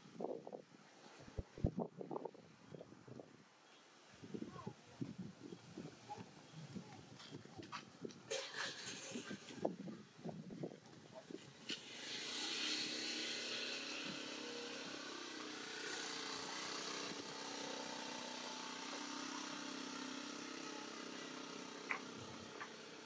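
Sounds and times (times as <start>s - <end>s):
vehicle engine humming: 11.2s - 23.0s
hiss: 11.6s - 23.0s.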